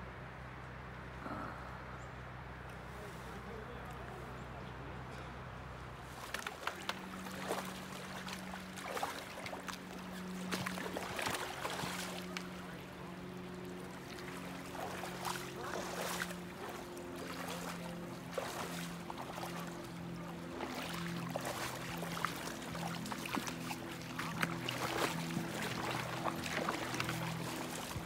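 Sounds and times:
low hum of held tones: 0.0 - 28.0
water splashing around waders: 5.8 - 28.0.

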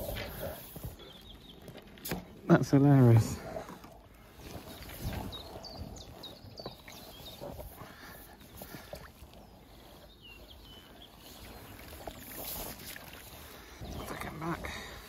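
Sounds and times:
bird chirping: 0.0 - 3.2, 4.3 - 14.7
faint water splashing: 2.0 - 15.0.

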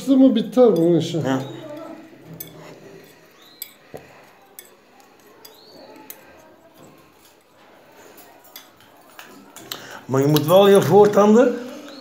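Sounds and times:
metal spatula scraping on glass: 0.6 - 9.6.

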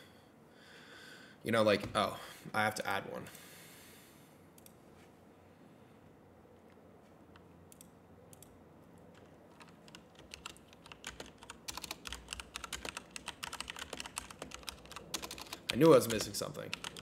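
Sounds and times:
typing on computer keyboard: 9.1 - 17.0.

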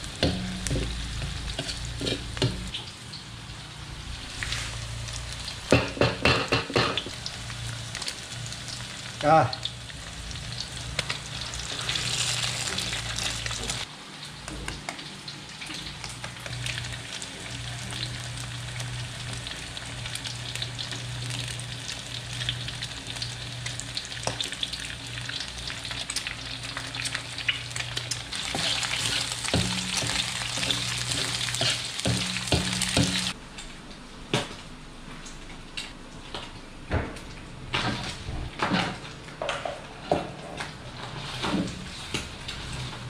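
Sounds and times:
eggs sizzling in hot oil: 0.0 - 33.4.

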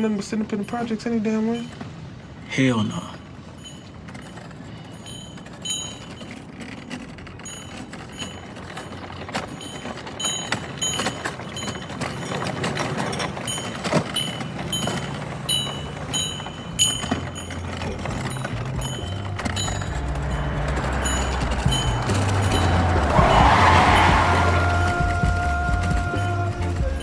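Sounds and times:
small bell ringing: 2.8 - 27.0
low rumble: 18.0 - 26.0.

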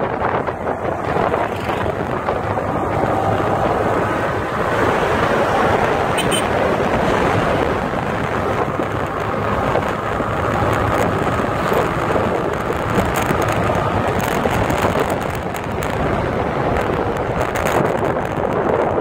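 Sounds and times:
road noise: 0.0 - 19.0
wind rushing over microphone: 0.0 - 19.0
motorcycle engine running: 0.1 - 4.4.

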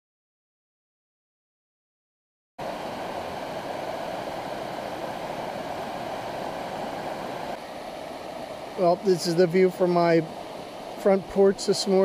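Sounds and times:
river rushing over stones: 2.6 - 12.0.

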